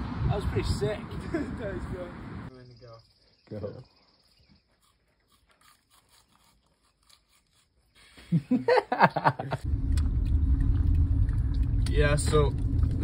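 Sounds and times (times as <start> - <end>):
car driving rumble from inside: 9.6 - 13.0.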